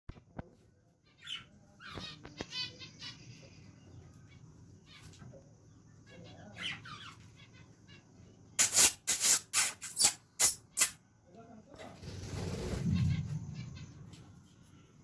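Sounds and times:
budgerigars warbling chirps: 0:06.0 - 0:08.1
rustling wing flaps: 0:11.9 - 0:13.5.

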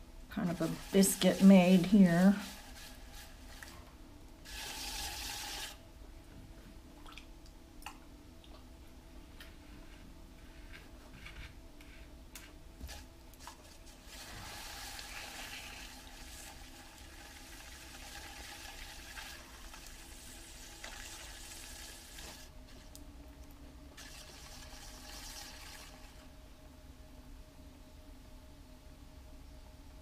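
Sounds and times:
potter's wheel humming: 0:00.0 - 0:06.3
water dripping and splashing: 0:07.0 - 0:08.7.

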